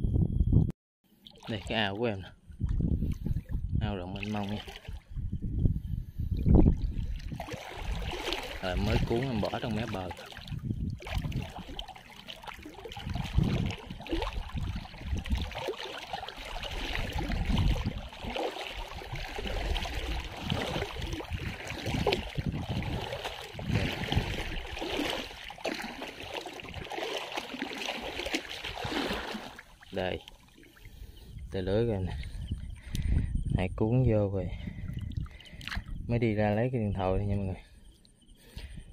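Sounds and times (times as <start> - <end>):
water sloshing and splashing: 1.1 - 33.3, 34.5 - 36.6
low bumps of movement: 5.0 - 9.8.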